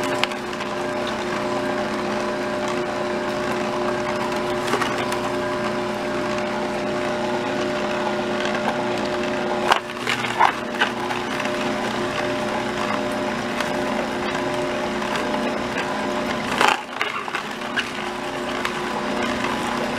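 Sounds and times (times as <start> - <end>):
juicer motor humming: 0.0 - 19.9.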